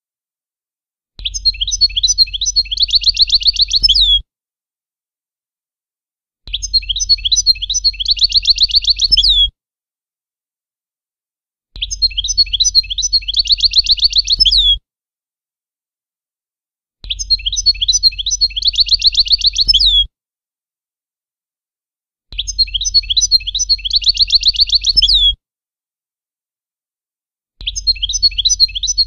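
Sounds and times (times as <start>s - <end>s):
goldfinch song: 1.2s - 4.2s, 6.5s - 9.5s, 11.8s - 14.8s, 17.0s - 20.1s, 22.3s - 25.4s, 27.6s - 29.0s.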